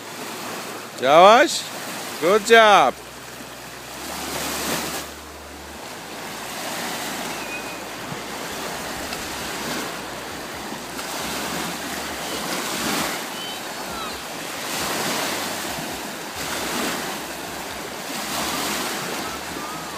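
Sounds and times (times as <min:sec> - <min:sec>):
small waves washing: 0:00.0 - 0:19.9.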